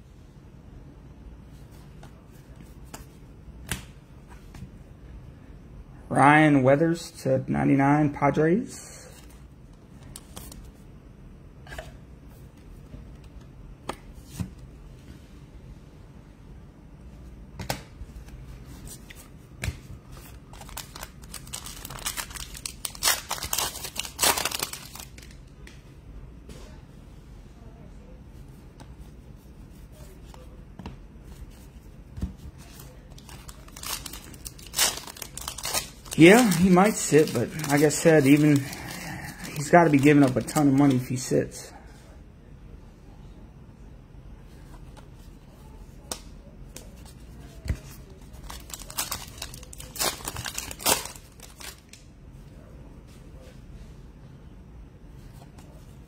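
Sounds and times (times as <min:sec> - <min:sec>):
plastic sleeve rustling: 0:20.1 - 0:25.4, 0:32.6 - 0:41.3, 0:47.4 - 0:52.0
wrapper crinkling: 0:20.4 - 0:25.4, 0:32.8 - 0:41.3, 0:48.3 - 0:52.0.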